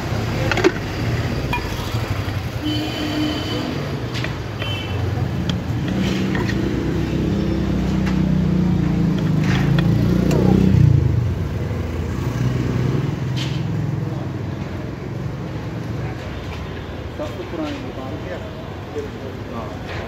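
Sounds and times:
vehicle engine passing by: 5.2 - 14.4.

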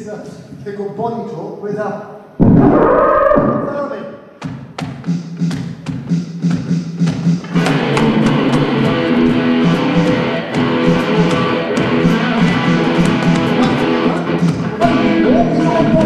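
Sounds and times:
beat of sharp hits: 2.4 - 3.8
electric guitar rock rhythm: 7.4 - 16.0.

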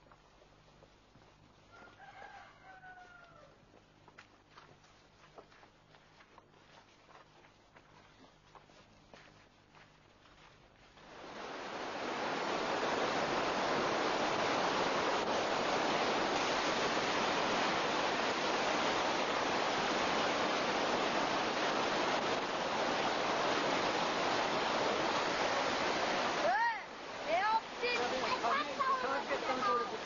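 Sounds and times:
rushing water: 10.3 - 30.0.

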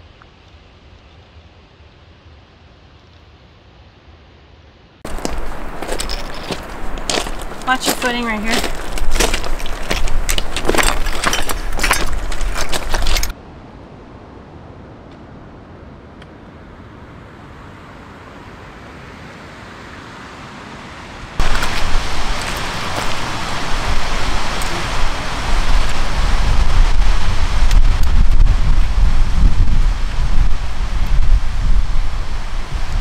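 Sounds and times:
steady outdoor hiss: 0.0 - 33.0
boots crunching on scree: 5.1 - 13.3, 21.4 - 25.0
wind buffeting microphone: 5.1 - 14.0, 21.4 - 33.0.

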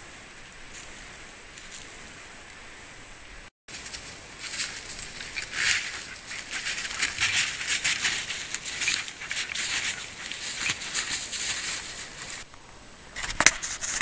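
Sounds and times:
brush rustling past: 0.6 - 2.8, 3.7 - 12.5
footsteps crunching leaves and snow: 3.7 - 12.5.

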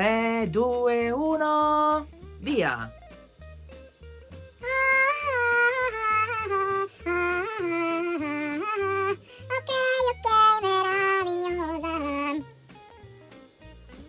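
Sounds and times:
backing music with bass line: 0.0 - 14.0
high-pitched voice singing: 4.6 - 12.4.

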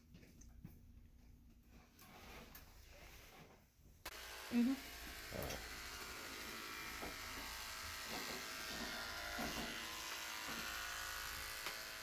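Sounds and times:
electric clippers buzzing: 4.1 - 12.0.

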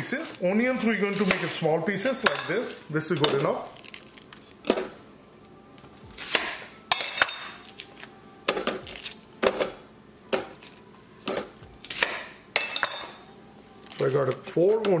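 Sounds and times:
kitchen utensils knocking: 1.3 - 3.5, 12.6 - 13.2.

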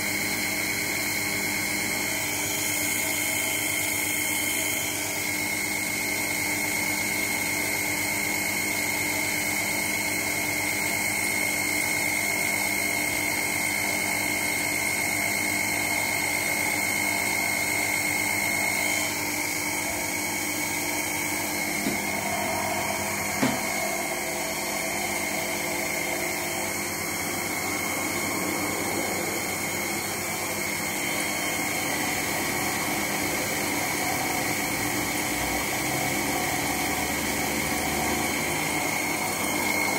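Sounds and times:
motor whining: 13.0 - 34.6.

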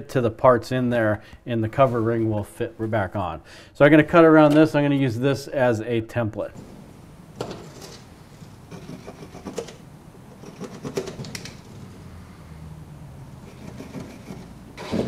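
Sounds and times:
pencil scratching on board: 8.7 - 9.7, 13.4 - 14.6.

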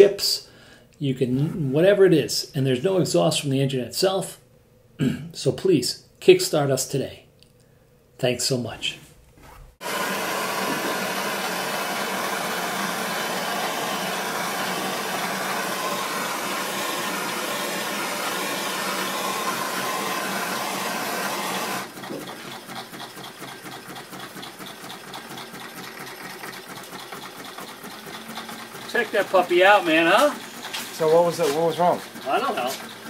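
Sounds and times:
gas torch hissing: 9.8 - 21.9
engine mechanical clatter: 21.8 - 33.0.

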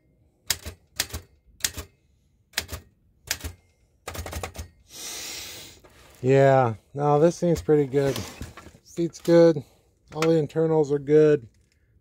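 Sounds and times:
typewriter keys striking: 0.5 - 1.9, 2.6 - 4.7
short hiss: 4.9 - 5.8.

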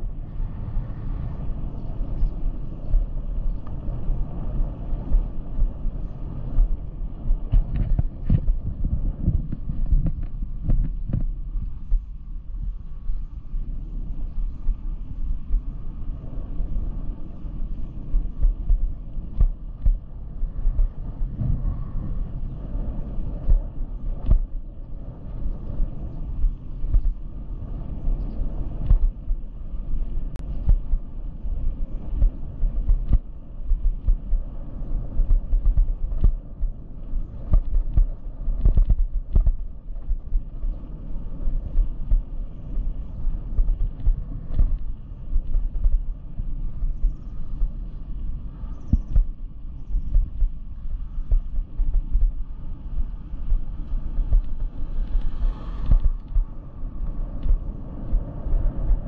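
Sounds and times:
wind buffeting microphone: 0.0 - 59.0
tyre rumble on road: 35.2 - 40.9.

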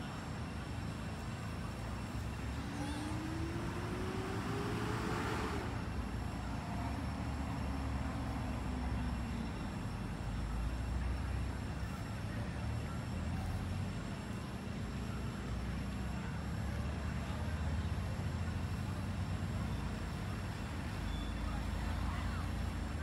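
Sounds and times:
low traffic rumble: 0.0 - 23.0
engine rising in pitch: 2.4 - 9.1.

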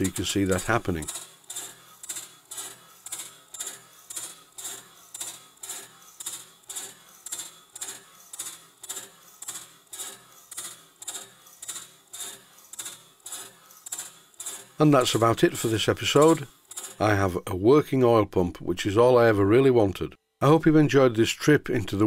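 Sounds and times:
ratchet clicking steadily: 0.0 - 17.0.

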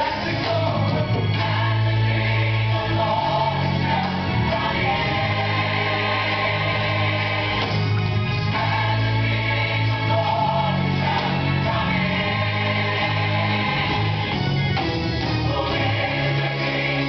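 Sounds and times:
band accompaniment with bass: 0.0 - 17.0
gospel choir singing: 0.0 - 17.0.

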